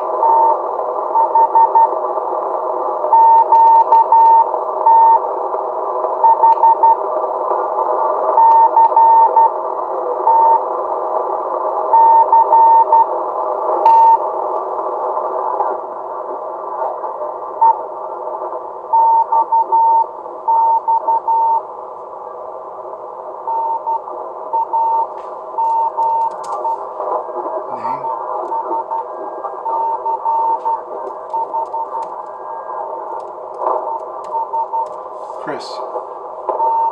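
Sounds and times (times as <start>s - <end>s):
radio band noise hiss: 0.0s - 36.9s
morse code tone: 24.6s - 26.8s, 28.3s - 32.7s, 33.8s - 34.9s, 36.6s - 36.9s.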